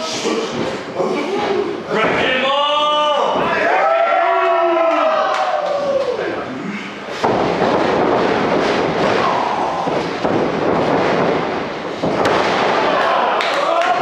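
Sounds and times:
crowd yelling: 2.3s - 6.5s, 12.7s - 14.0s.

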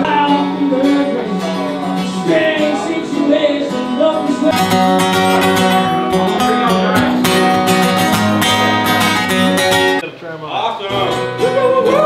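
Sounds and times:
person singing: 0.0s - 7.2s, 11.2s - 12.0s
acoustic guitar strumming: 0.0s - 10.0s, 10.8s - 12.0s.

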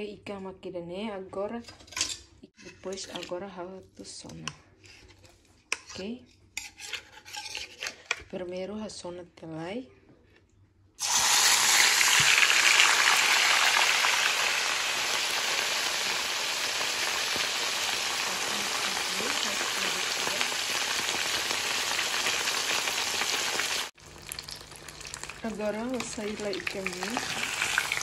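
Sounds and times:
fish sizzling in hot oil: 11.0s - 28.0s.

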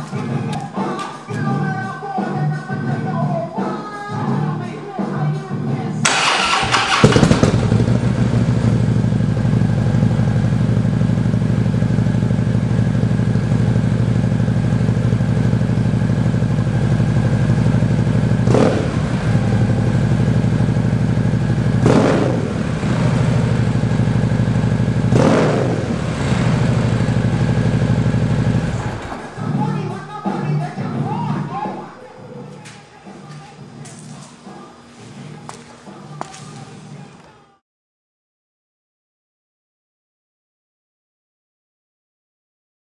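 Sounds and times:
motorcycle throttle blips: 6.1s - 29.7s
motorcycle engine idling: 6.1s - 29.9s.

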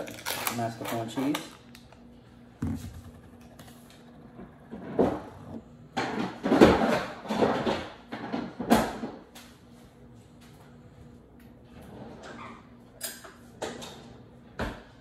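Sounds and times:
rustling and clattering of kitchen items: 0.0s - 1.9s, 2.5s - 10.8s.

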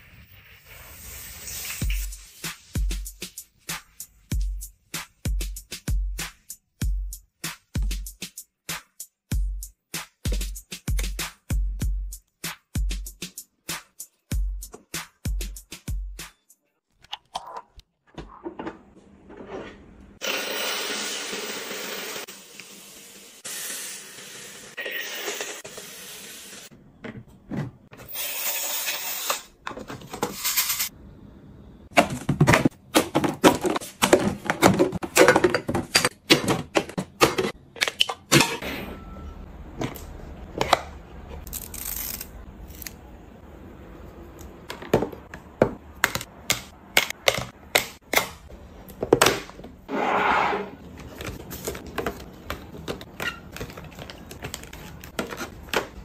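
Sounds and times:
plastic and glass bottles clacking: 32.0s - 38.3s
plastic packets rustling: 50.9s - 56.0s.

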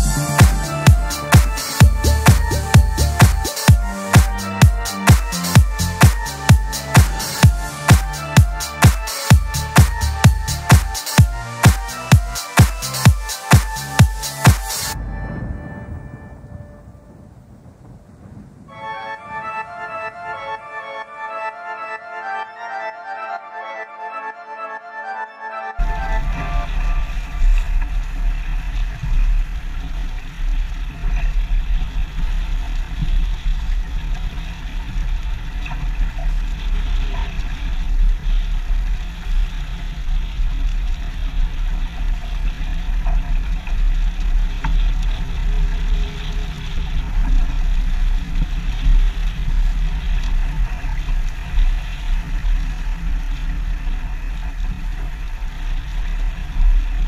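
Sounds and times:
wind buffeting microphone: 15.0s - 19.7s
water rushing along hull: 25.8s - 57.0s.

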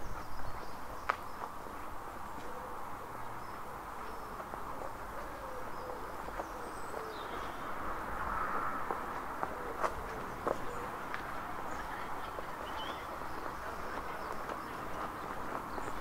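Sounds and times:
footsteps on brick paving: 0.0s - 2.6s, 3.5s - 4.8s, 6.2s - 7.2s, 8.8s - 16.0s
faint bird calls: 2.3s - 7.8s.

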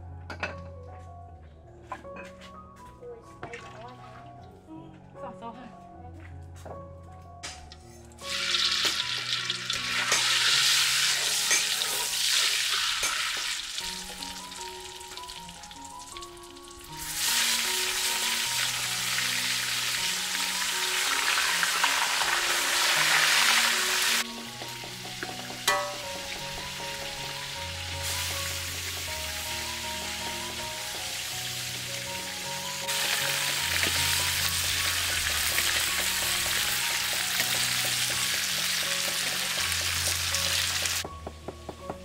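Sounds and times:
soft background music: 0.0s - 42.0s
fish frying in hot oil: 8.3s - 24.2s, 25.1s - 41.0s.

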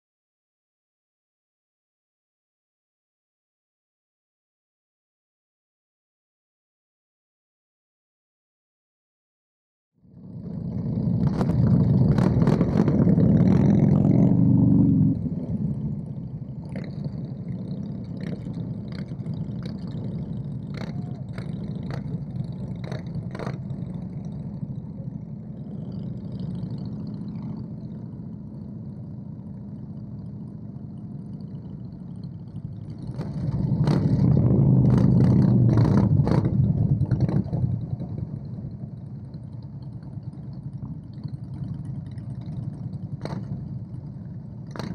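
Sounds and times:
motorcycle engines running: 10.1s - 44.9s.

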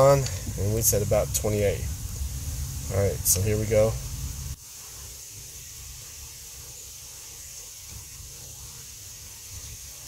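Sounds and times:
low rumble: 0.0s - 4.6s
steady background hiss: 0.0s - 10.0s.

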